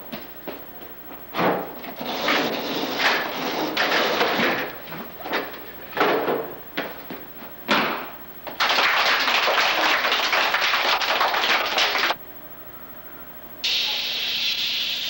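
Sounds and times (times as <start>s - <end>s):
children clapping and cheering: 8.5s - 12.2s.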